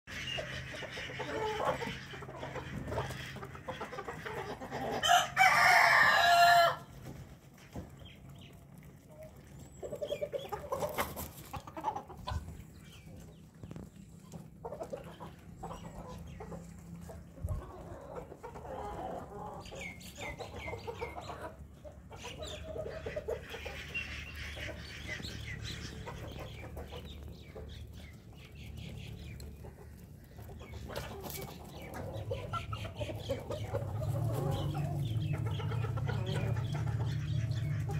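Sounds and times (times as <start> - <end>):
chickens clucking: 0.1 - 37.9
rooster crowing: 5.0 - 6.9.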